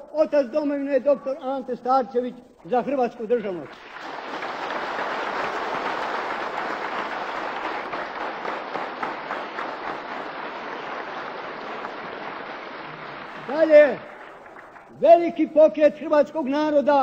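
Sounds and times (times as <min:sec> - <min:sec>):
crowd applauding: 0:03.6 - 0:15.0.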